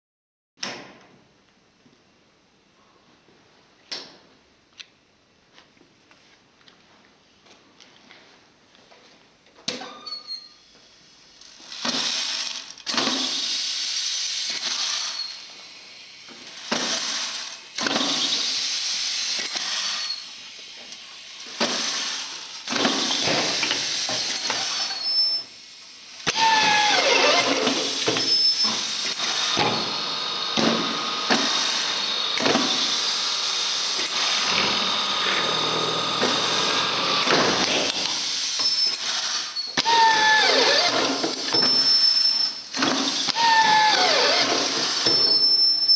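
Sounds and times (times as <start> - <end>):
screwdriver motor running: 11.6 - 15.5, 21.8 - 25.4, 26.3 - 45.9.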